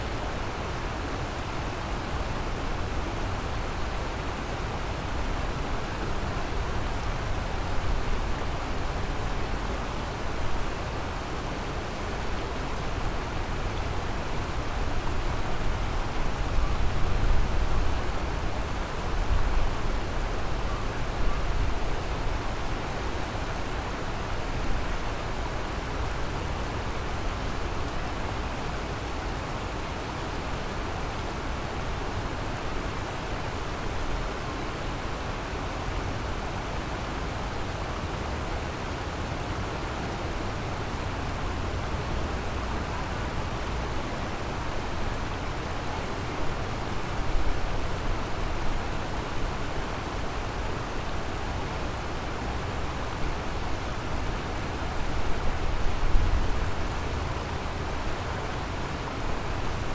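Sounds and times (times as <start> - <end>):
river water rushing: 0.0 - 59.9.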